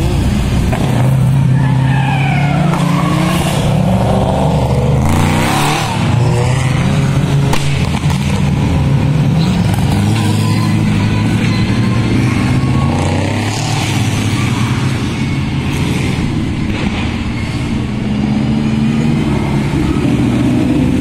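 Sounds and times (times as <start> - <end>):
car engines revving high: 0.0 - 21.0
tyre screech: 1.3 - 7.1, 9.4 - 18.3.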